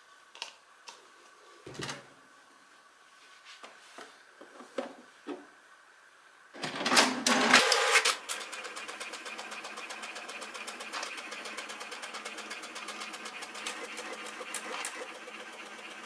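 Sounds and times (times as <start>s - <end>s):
printer clatter: 7.3s - 16.0s
printer mechanism ticking: 7.7s - 16.0s.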